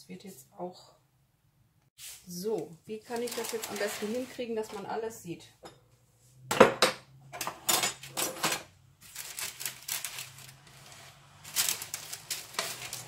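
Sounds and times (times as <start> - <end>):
paper rustling: 2.0 - 4.4, 9.0 - 13.0
kitchen items knocking and tapping: 6.5 - 8.7.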